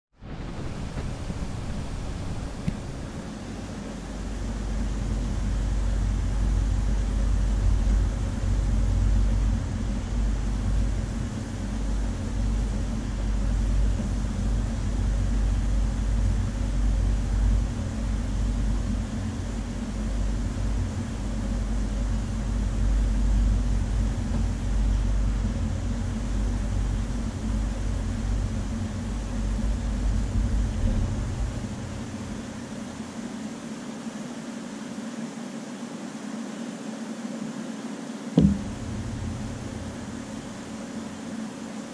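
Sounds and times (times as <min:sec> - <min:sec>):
deep rumble: 0:00.2 - 0:32.8, 0:38.4 - 0:41.2
low machine hum: 0:00.2 - 0:41.9.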